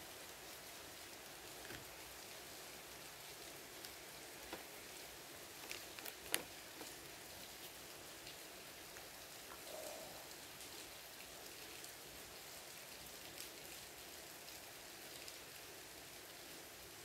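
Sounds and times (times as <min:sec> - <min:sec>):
background hiss: 0:00.0 - 0:17.0
trading cards tapping: 0:05.6 - 0:06.9.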